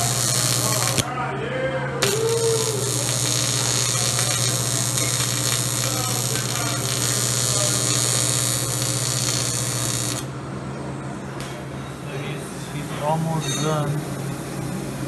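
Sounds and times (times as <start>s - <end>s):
welding arc buzzing: 0.0s - 1.1s, 2.0s - 10.4s.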